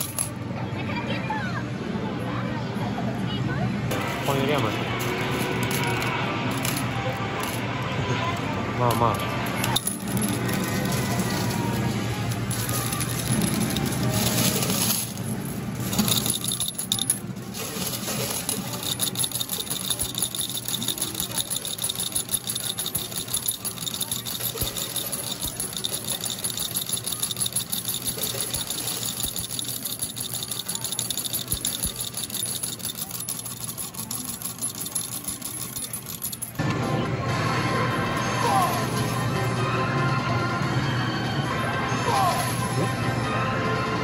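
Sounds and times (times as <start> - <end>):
metal medals rattling and sliding: 0.0 - 0.3, 3.9 - 7.7, 8.9 - 36.6.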